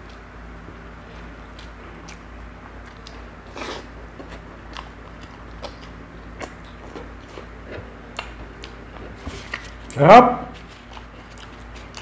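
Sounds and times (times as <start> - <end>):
person chewing: 1.0 - 12.0.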